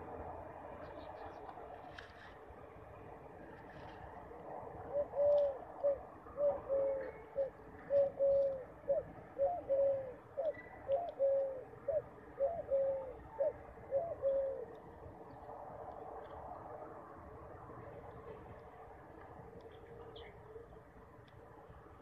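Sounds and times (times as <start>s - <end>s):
pigeon cooing: 4.9s - 14.8s.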